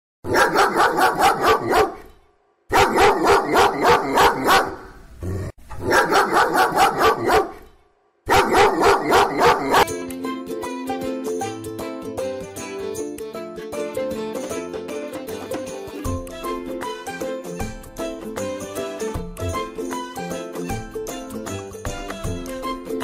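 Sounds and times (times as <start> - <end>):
dog barking: 0.3 - 2.1, 2.7 - 5.0, 5.8 - 7.7, 8.3 - 9.9.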